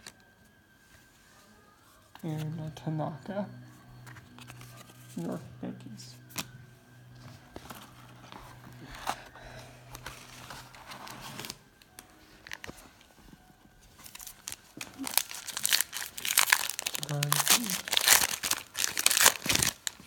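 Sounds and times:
cards rustling: 2.4 - 20.0
foil wrapper tearing and crinkling: 7.7 - 12.8, 14.0 - 20.0.

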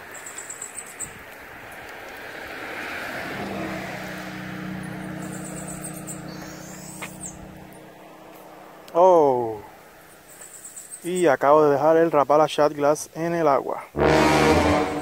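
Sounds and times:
insects chirping: 0.0 - 1.8, 4.2 - 8.9, 9.6 - 11.5
car passing by: 1.4 - 9.0, 14.0 - 15.0.

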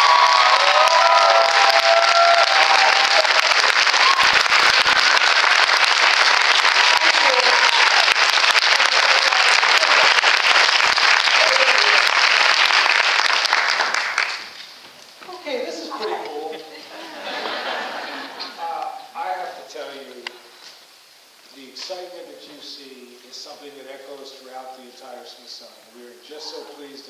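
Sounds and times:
voices cheering: 0.0 - 6.2, 6.8 - 10.3
audience applauding: 0.0 - 14.8.

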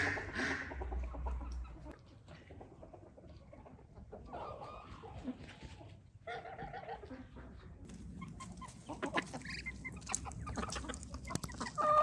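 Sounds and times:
hens clucking softly: 0.0 - 12.0
geese honking: 8.2 - 12.0.

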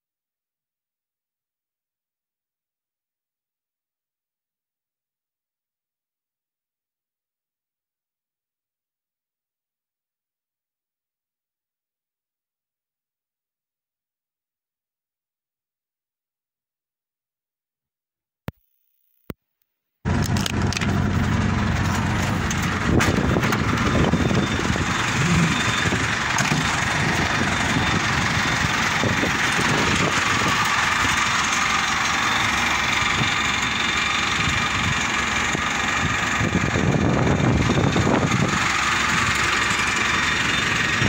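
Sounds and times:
vehicle engine running: 20.1 - 41.0.

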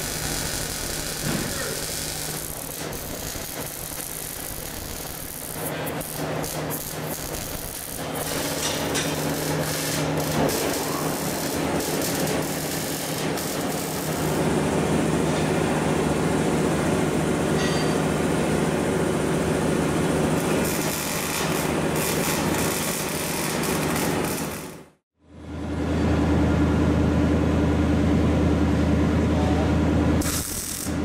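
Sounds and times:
arc welding crackle: 0.0 - 14.5, 20.4 - 25.0, 30.2 - 31.0.

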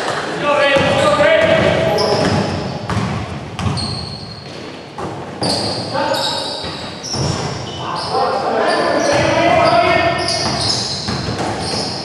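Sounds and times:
sneaker squeaks: 0.0 - 12.0
players' voices: 0.1 - 2.8, 5.4 - 10.9
basketball bouncing on court: 0.7 - 7.7, 9.0 - 12.0.

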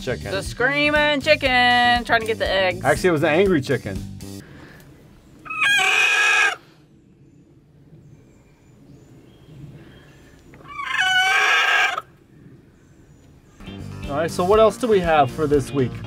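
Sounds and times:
chicken screaming: 5.4 - 6.8, 10.6 - 12.2.

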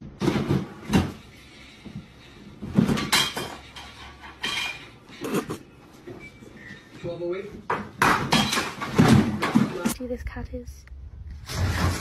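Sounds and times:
plastic trash can clattering: 0.0 - 1.2, 7.7 - 9.9.

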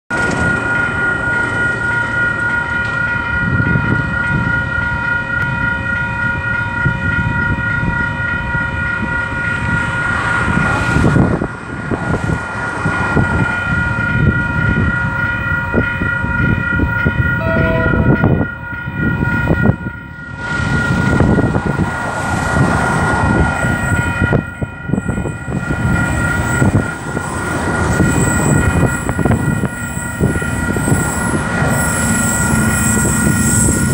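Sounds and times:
wind buffeting microphone: 2.9 - 33.9
level crossing bells ringing: 13.2 - 21.9.

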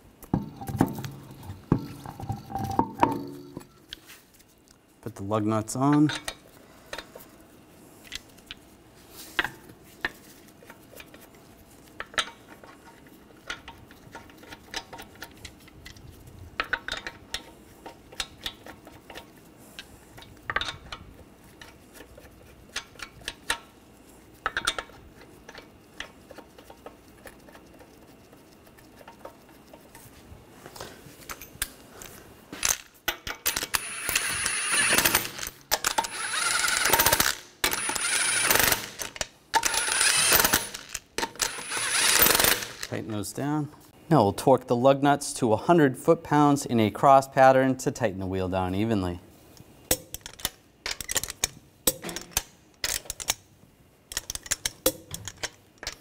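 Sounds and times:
cordless power tool bursts: 36.1 - 39.0, 39.6 - 42.9.

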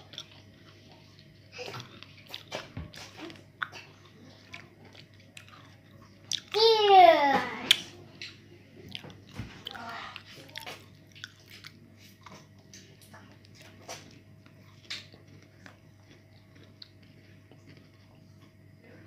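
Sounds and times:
children eating with mouth smacks: 0.0 - 19.0.

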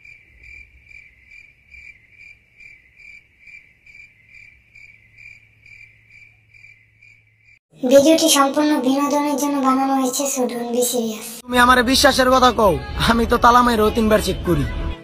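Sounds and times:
cricket chirping: 0.0 - 7.6.

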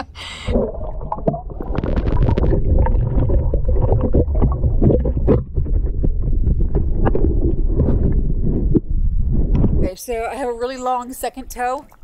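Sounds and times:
underwater rumble of moving water: 0.4 - 10.3
underwater clicks and knocks: 0.5 - 9.9.

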